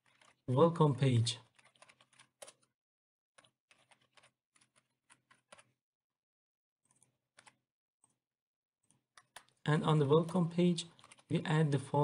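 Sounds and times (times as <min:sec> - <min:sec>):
faint keyboard typing: 0:00.0 - 0:02.8, 0:03.4 - 0:05.8, 0:06.8 - 0:08.2, 0:08.8 - 0:11.7.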